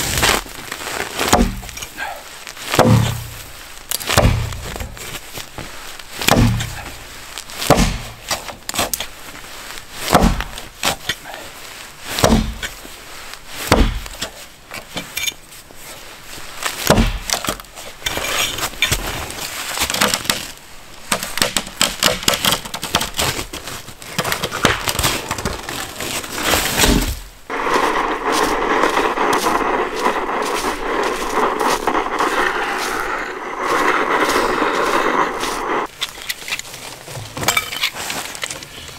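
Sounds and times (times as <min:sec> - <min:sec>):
axe chopping wood: 0:01.3 - 0:01.8, 0:02.7 - 0:03.4, 0:04.0 - 0:04.9, 0:06.2 - 0:06.8, 0:07.6 - 0:09.0, 0:10.1 - 0:11.0, 0:12.2 - 0:12.7, 0:13.7 - 0:14.2, 0:16.8 - 0:17.6, 0:21.1 - 0:23.0
wood cracking and splintering: 0:19.7 - 0:27.3
steady rushing noise: 0:27.5 - 0:35.9.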